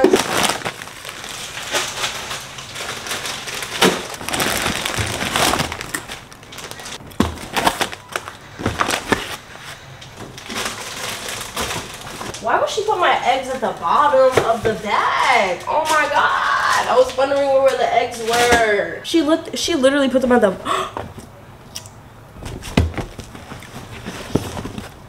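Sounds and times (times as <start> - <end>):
plastic snack bags rustling: 0.0 - 18.6
items knocking as set down: 6.6 - 9.4.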